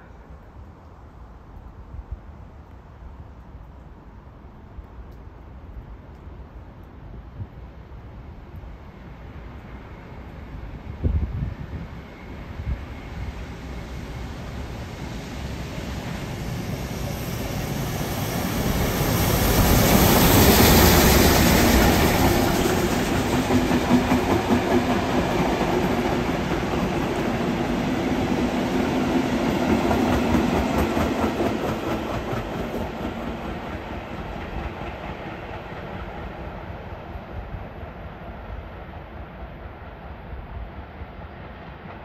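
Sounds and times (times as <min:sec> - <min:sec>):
steam locomotive passing: 0:06.3 - 0:42.0
train wheels clicking over rail joints: 0:19.5 - 0:27.8, 0:29.1 - 0:36.2.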